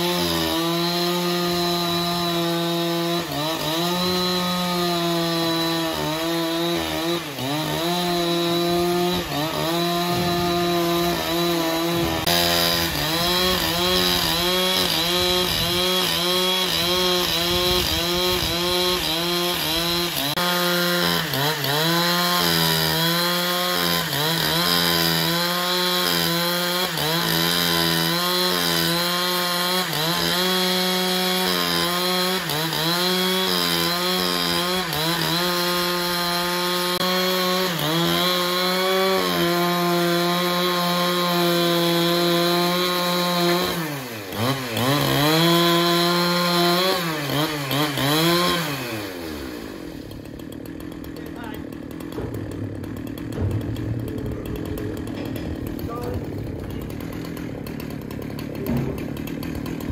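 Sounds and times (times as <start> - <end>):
chainsaw cutting log: 0.0 - 59.9.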